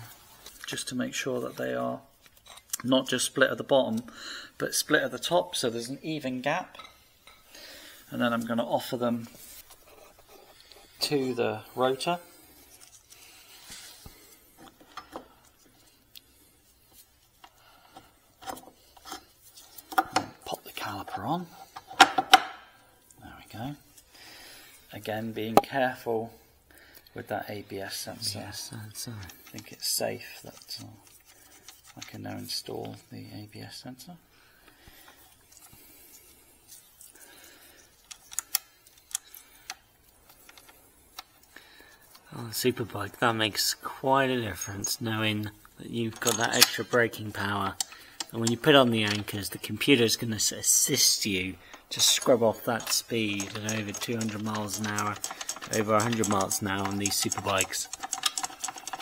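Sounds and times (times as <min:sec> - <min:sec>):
faint rustle of handling: 0:00.0 - 0:21.8, 0:23.0 - 0:59.0
faint metallic clicks and knocks: 0:45.6 - 0:50.6, 0:51.5 - 0:59.0.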